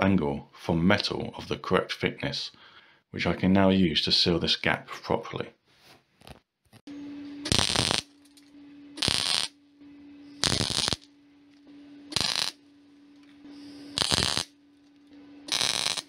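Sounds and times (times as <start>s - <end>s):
welder hum: 6.9s - 16.0s
welding arc crackle: 7.5s - 8.1s, 9.0s - 9.6s, 10.4s - 11.1s, 12.1s - 12.6s, 13.8s - 14.6s, 15.5s - 16.0s.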